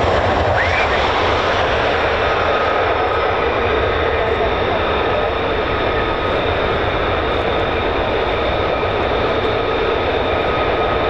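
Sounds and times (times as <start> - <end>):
jet engines running: 0.0 - 11.0.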